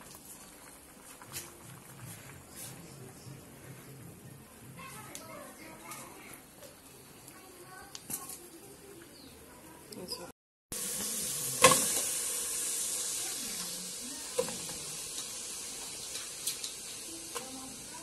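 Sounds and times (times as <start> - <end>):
water pouring into a pot: 0.0 - 3.0, 10.7 - 18.0.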